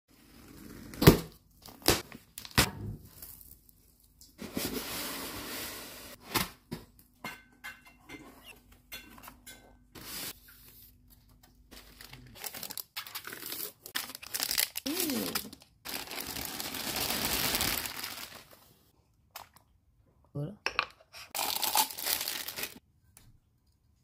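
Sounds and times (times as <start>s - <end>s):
packing tape tearing: 11.8s - 18.4s
packaging clicks and rustles: 11.8s - 18.6s.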